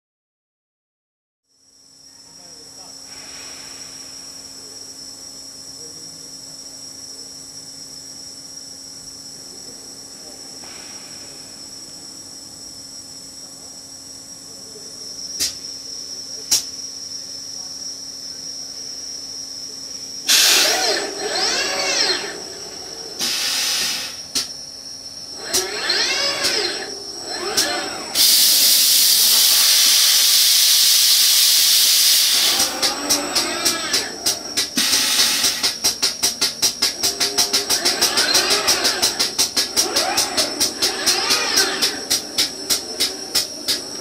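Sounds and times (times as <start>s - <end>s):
robotic machine hum: 20.2s - 44.0s
sharp clicks: 31.8s - 44.0s.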